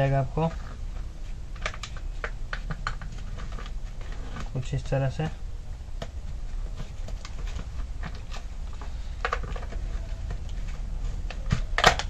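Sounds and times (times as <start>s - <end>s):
steady low hum: 0.0s - 12.0s
plastic parts clicking and rubbing: 0.4s - 4.6s, 6.6s - 12.0s.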